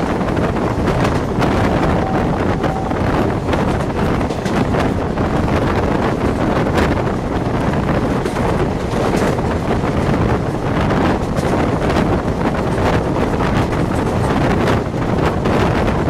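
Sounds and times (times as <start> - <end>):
train rumbling on rails: 0.0 - 16.0
wind buffeting microphone: 0.0 - 16.0.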